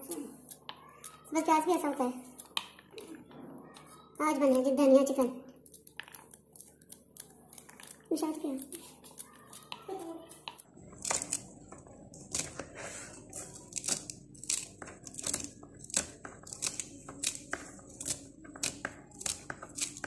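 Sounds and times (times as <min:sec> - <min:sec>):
knife snipping herb stems: 0:13.5 - 0:20.0.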